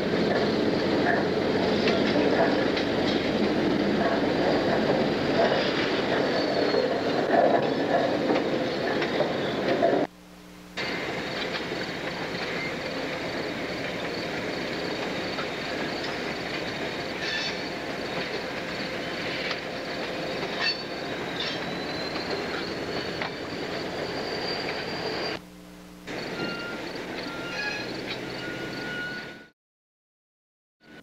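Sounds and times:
train wheels rumbling on rail: 0.0s - 10.1s, 10.8s - 25.4s, 26.1s - 29.5s
wheels clacking at rail joints: 0.0s - 10.1s, 10.8s - 25.4s, 26.2s - 29.5s
high steady squeal: 10.8s - 25.4s, 26.1s - 29.5s.

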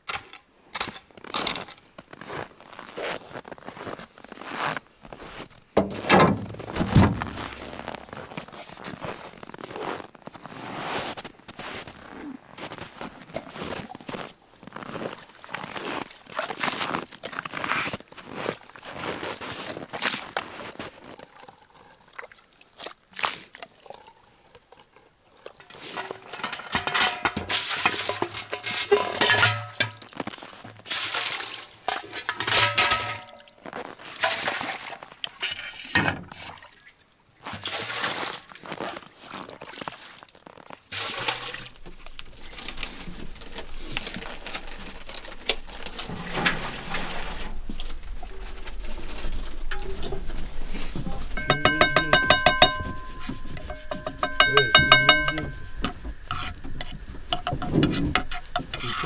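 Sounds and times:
metal clanking: 25.6s - 30.0s, 32.2s - 33.4s, 49.6s - 59.0s
water splashing: 27.5s - 33.6s, 36.4s - 59.0s.

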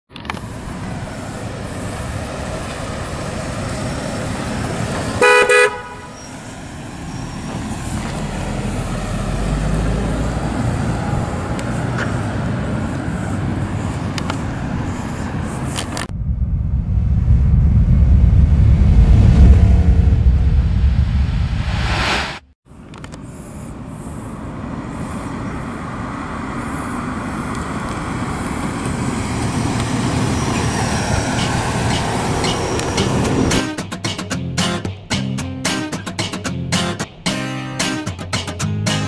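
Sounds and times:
car engine driving away: 0.6s - 15.4s, 16.0s - 22.2s, 25.0s - 33.6s
car horn toot: 5.2s - 6.4s
deep low rumble: 16.0s - 22.4s.

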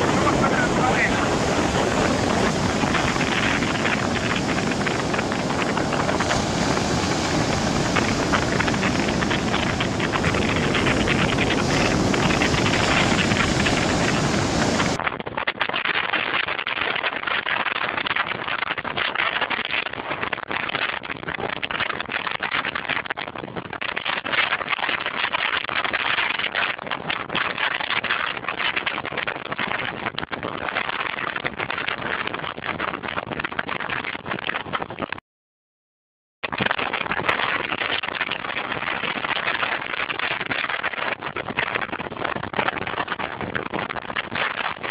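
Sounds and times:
heavy surf breaking: 0.0s - 15.0s
wind blasting the microphone: 0.0s - 35.2s, 36.4s - 44.9s.

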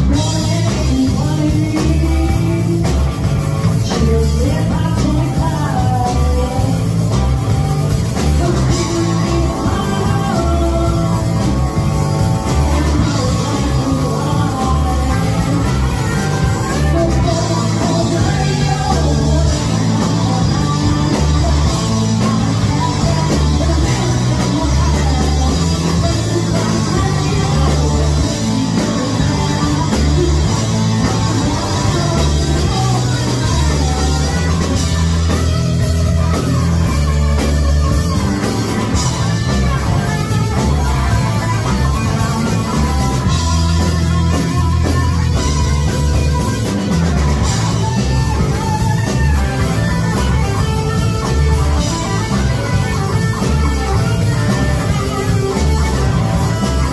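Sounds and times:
woman singing: 0.0s - 7.2s, 8.1s - 34.9s
bass guitar: 0.0s - 56.9s
drum kit: 0.0s - 56.9s
electric guitars: 0.0s - 56.9s.

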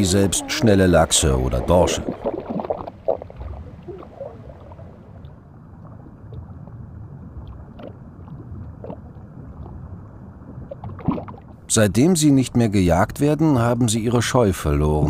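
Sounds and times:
muffled underwater water rush: 0.0s - 11.8s.

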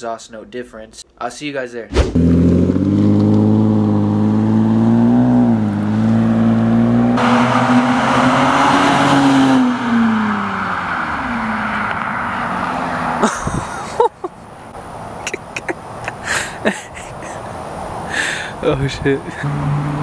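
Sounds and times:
car exhaust raspy roar: 2.1s - 12.6s.

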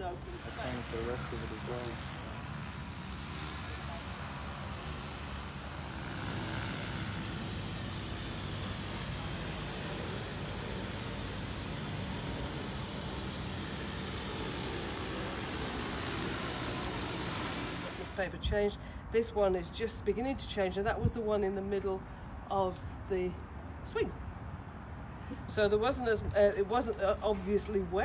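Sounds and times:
drone propellers whirring: 0.0s - 18.4s.

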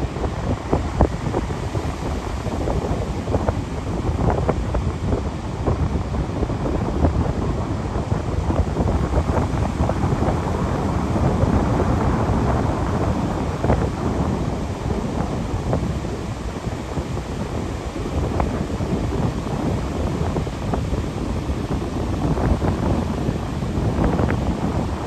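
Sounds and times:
ocean surf washing on beach: 0.0s - 25.0s
wind rumble on microphone: 0.0s - 25.0s.

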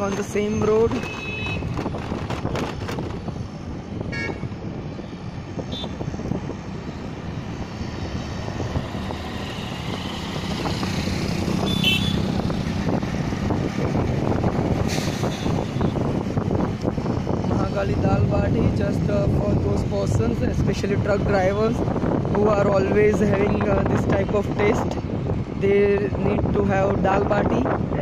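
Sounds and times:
motorcycle engine hum: 0.0s - 14.8s
passing traffic: 0.0s - 28.0s
wind: 0.0s - 28.0s.

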